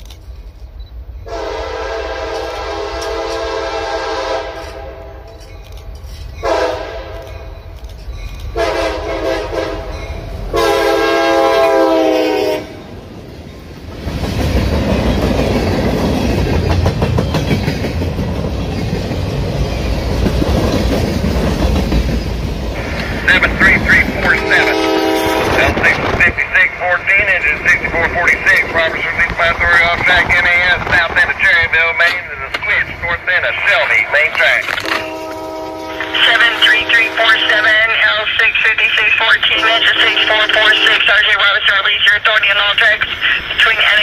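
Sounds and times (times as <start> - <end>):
locomotive horn blasts: 1.3 - 5.1, 6.4 - 7.2, 8.6 - 9.9, 10.5 - 12.9, 24.0 - 26.2, 34.8 - 37.9, 39.5 - 41.2
locomotive engines running: 19.6 - 24.9, 36.0 - 44.0.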